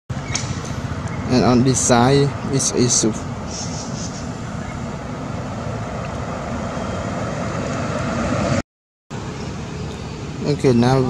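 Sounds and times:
outdoor background hiss: 0:00.1 - 0:08.5, 0:09.1 - 0:11.0.

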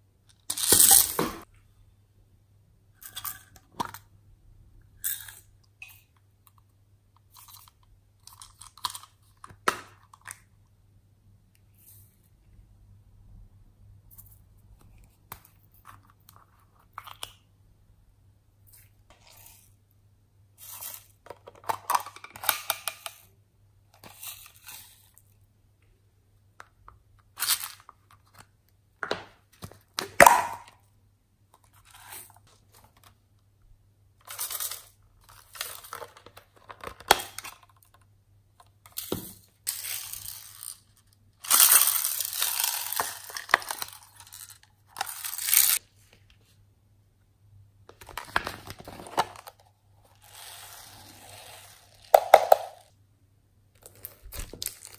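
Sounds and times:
beads pouring: 0:39.7 - 0:45.8, 0:50.1 - 0:52.9.

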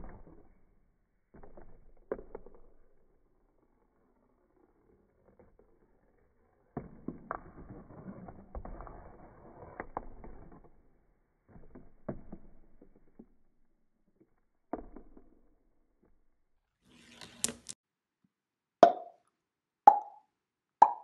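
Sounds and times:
marbles rolling on cardboard track: 0:16.8 - 0:17.8.

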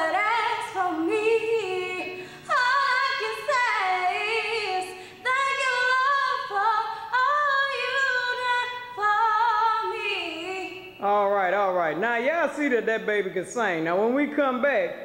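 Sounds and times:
woman singing a cappella: 0:00.0 - 0:11.0.

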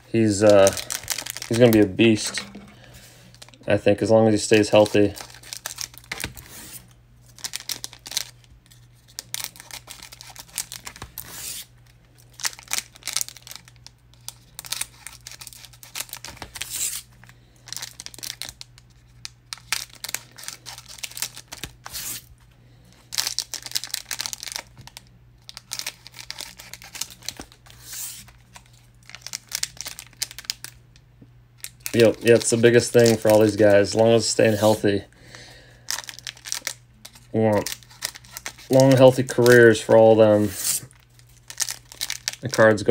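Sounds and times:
wrappers crinkling: 0:00.1 - 0:22.3, 0:23.0 - 0:30.8, 0:31.6 - 0:35.0, 0:35.7 - 0:42.9.

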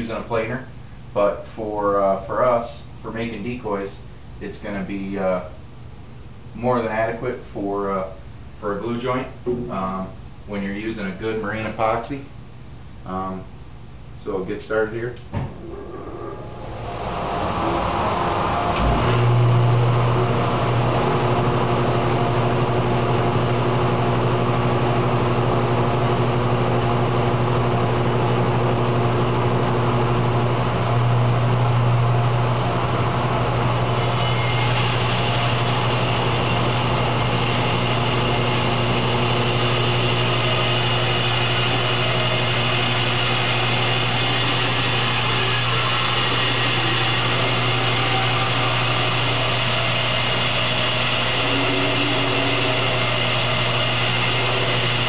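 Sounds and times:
bandsaw cutting wood: 0:33.6 - 0:55.0.

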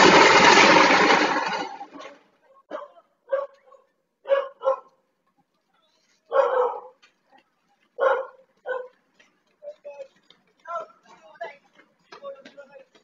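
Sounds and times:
dog barking: 0:02.7 - 0:05.0, 0:06.3 - 0:07.0, 0:08.0 - 0:09.0.

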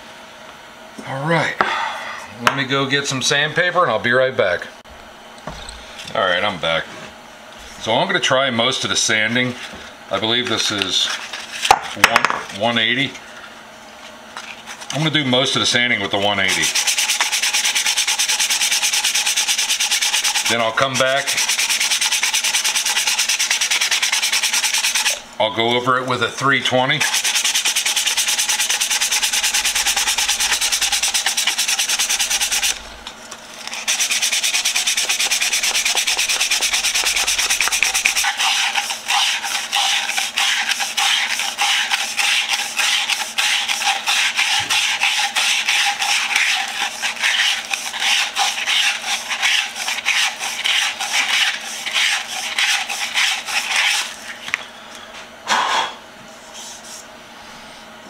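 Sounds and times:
sandpaper rubbing on wood: 0:16.4 - 0:25.2, 0:27.0 - 0:33.0, 0:33.7 - 0:54.4.

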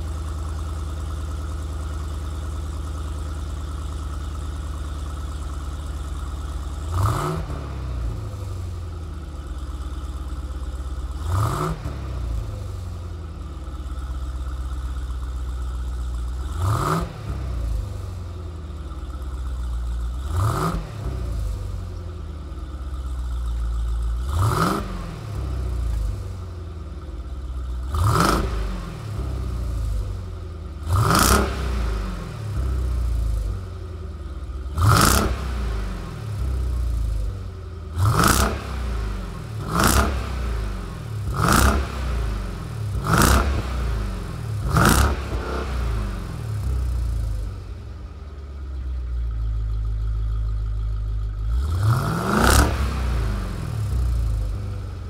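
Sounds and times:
car engine idling: 0:00.0 - 0:55.0
engine revs: 0:05.0 - 0:15.3, 0:16.2 - 0:19.2, 0:19.8 - 0:27.0, 0:27.6 - 0:55.0.

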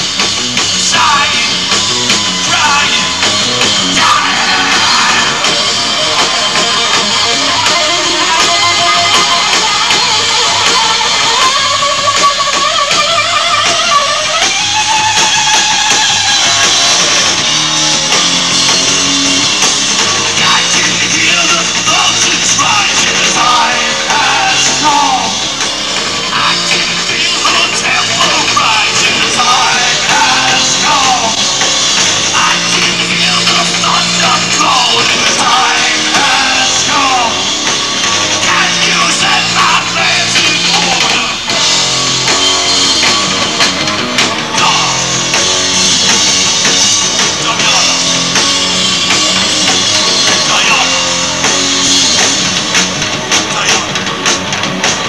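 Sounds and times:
heavy rock band playing: 0:00.0 - 0:55.0
person singing: 0:00.8 - 0:01.8, 0:02.5 - 0:14.5, 0:20.2 - 0:25.5, 0:26.2 - 0:31.6, 0:32.2 - 0:37.7, 0:38.3 - 0:41.6, 0:44.4 - 0:45.4, 0:47.3 - 0:48.4, 0:49.1 - 0:51.4.

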